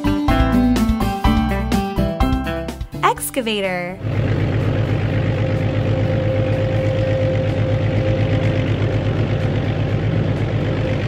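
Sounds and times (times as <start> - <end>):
heavy engine idling: 4.0 - 11.0.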